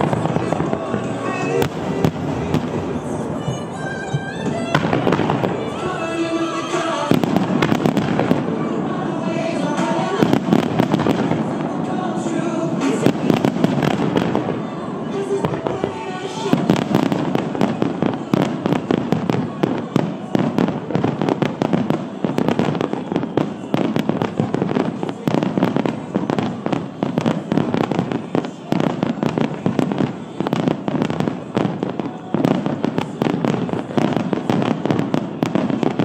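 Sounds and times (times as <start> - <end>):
fireworks bangs and crackle: 0.0 - 36.0
music playing: 0.0 - 36.0.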